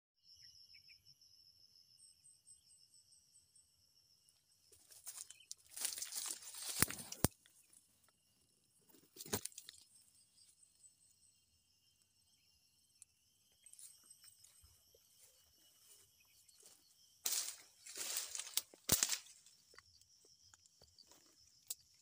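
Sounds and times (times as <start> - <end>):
insects chirring: 0.2 - 22.0
fronds and undergrowth rustling: 4.7 - 8.0, 8.9 - 9.9, 13.7 - 20.0.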